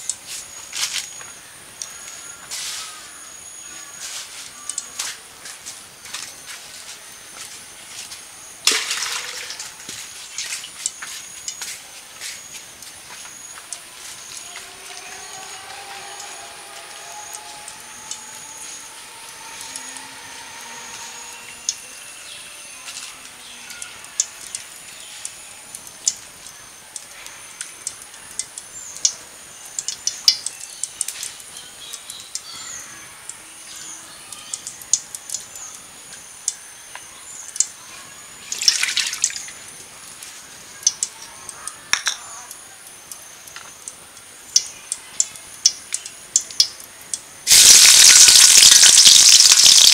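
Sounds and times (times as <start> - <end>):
hand squeezing wet food in bowl: 47.5 - 49.9
wet squelches and clicks: 47.5 - 49.9.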